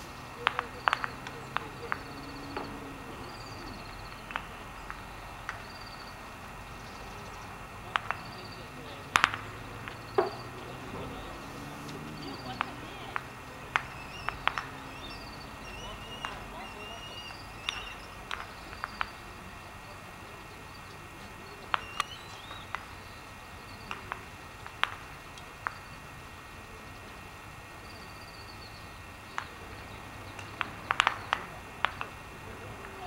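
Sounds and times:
steady hiss: 0:00.0 - 0:33.0
sharp clicks and taps: 0:00.4 - 0:02.8, 0:07.9 - 0:08.4, 0:09.1 - 0:11.1, 0:11.8 - 0:15.2, 0:17.6 - 0:19.2, 0:21.2 - 0:22.9, 0:23.8 - 0:25.8, 0:30.3 - 0:32.2
faint high chirps: 0:13.8 - 0:24.1.

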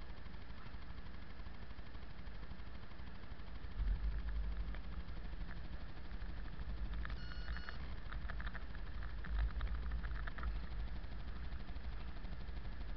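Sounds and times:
car engine and tyres rumbling: 0:03.7 - 0:12.9
short electronic beep: 0:07.2 - 0:07.8.

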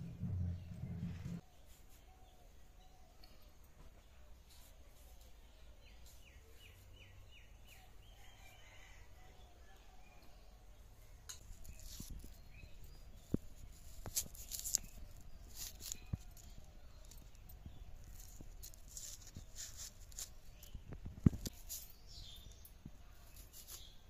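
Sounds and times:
onion skin peeling crackle: 0:13.5 - 0:17.4.

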